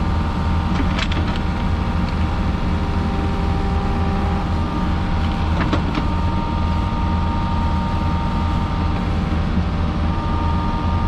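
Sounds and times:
diesel engine running: 0:00.0 - 0:11.0
steady whine: 0:00.0 - 0:11.0.

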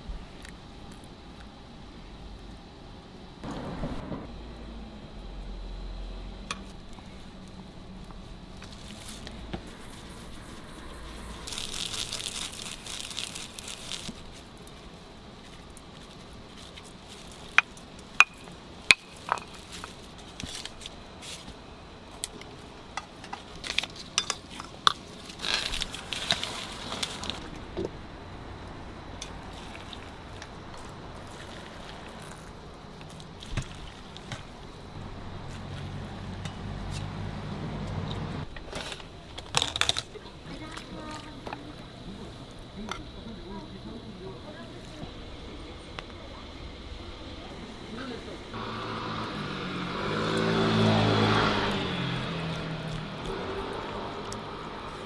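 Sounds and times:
rustling hiss: 0:03.4 - 0:39.4.

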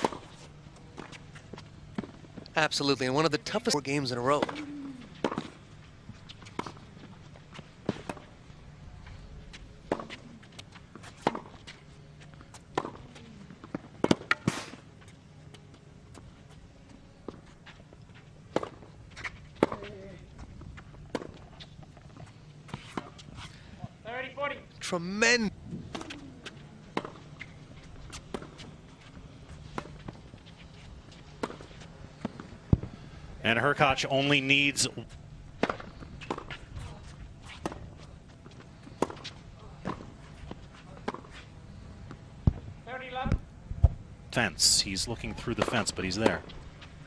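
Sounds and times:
players' footsteps: 0:44.4 - 0:47.0.

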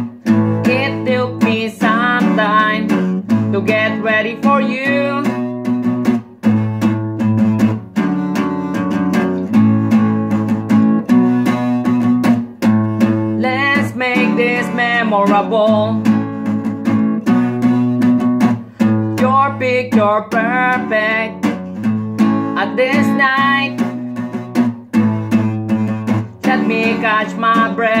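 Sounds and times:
acoustic guitar strumming: 0:00.0 - 0:28.0
man singing: 0:26.4 - 0:28.0.

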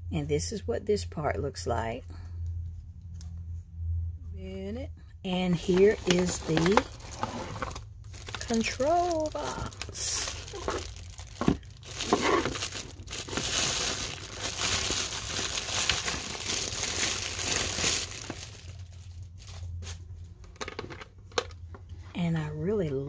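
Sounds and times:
plastic wrap crinkling: 0:05.6 - 0:20.4.

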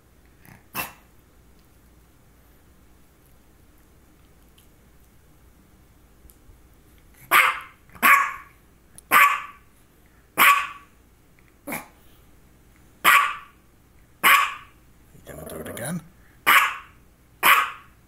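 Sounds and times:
small dog barking: 0:00.5 - 0:01.1, 0:07.2 - 0:09.7, 0:10.4 - 0:11.0, 0:11.6 - 0:12.0, 0:13.0 - 0:13.6, 0:14.2 - 0:14.8, 0:16.4 - 0:18.0.

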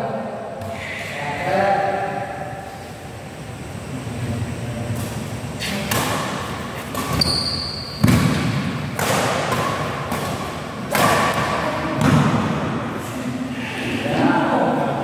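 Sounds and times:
racket hitting shuttlecock: 0:05.0 - 0:12.7
shoes squeaking on court floor: 0:06.8 - 0:08.2.

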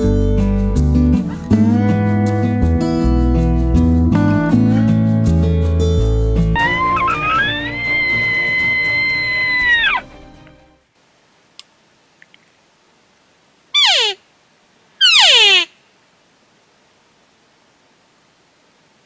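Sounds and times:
slide guitar music: 0:00.0 - 0:10.5
elk call blown by mouth: 0:06.6 - 0:10.0, 0:13.8 - 0:14.2, 0:15.0 - 0:15.8.

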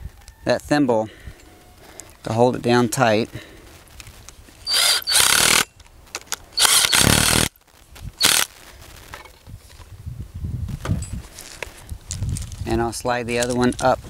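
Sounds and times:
cordless power driver spinning: 0:04.6 - 0:05.7, 0:06.3 - 0:07.5, 0:08.2 - 0:08.5.

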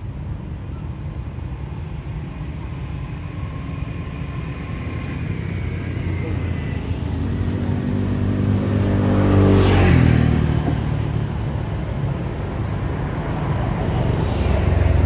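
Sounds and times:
low engine hum: 0:00.0 - 0:15.0
vehicle driving past: 0:03.2 - 0:11.9.

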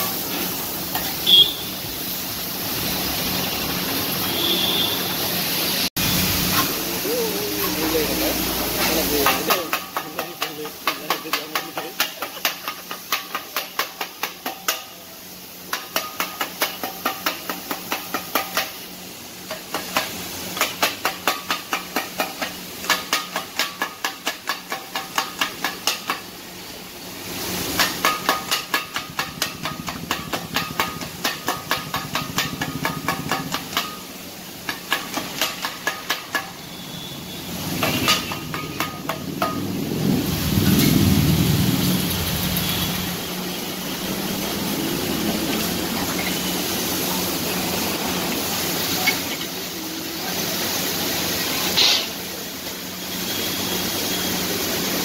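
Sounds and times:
steady hiss: 0:00.0 - 0:55.0
metal spatulas clattering on griddle: 0:08.8 - 0:15.0, 0:15.6 - 0:18.9, 0:19.5 - 0:26.3, 0:27.7 - 0:36.6, 0:37.7 - 0:39.7
loud rushing noise: 0:37.5 - 0:48.8.

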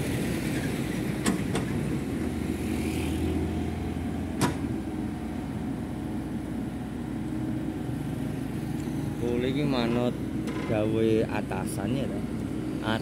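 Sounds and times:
excavator diesel engine running: 0:00.0 - 0:13.0
sharp knocks: 0:04.4 - 0:04.7.

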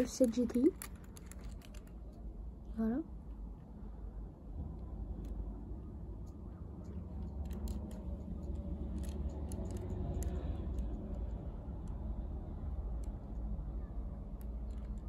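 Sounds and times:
toy car handling clicks: 0:00.0 - 0:02.2, 0:06.8 - 0:12.1, 0:14.3 - 0:15.0
low steady rumble: 0:00.0 - 0:15.0.

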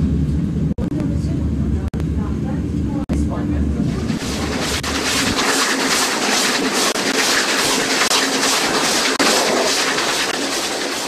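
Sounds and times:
low rumble: 0:00.0 - 0:08.0
steam locomotive exhaust chuffs: 0:00.0 - 0:11.0
train noise rushing: 0:00.0 - 0:11.0.

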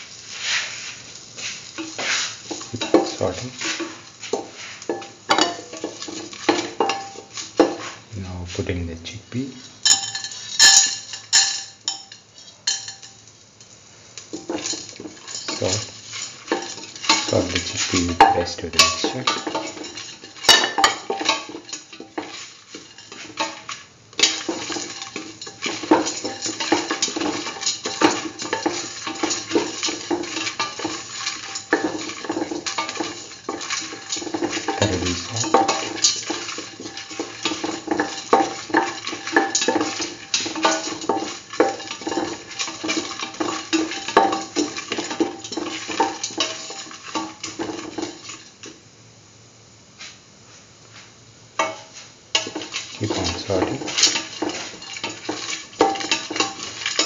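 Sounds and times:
spatula scraping metal pan: 0:14.4 - 0:48.5, 0:51.6 - 0:57.0.

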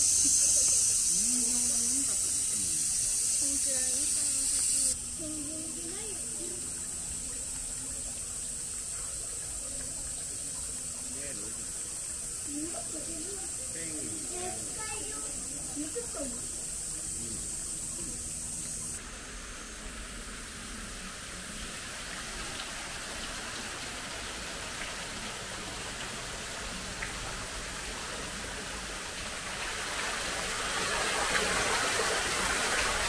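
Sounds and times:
waterfall rushing down rock wall: 0:19.0 - 0:33.0.

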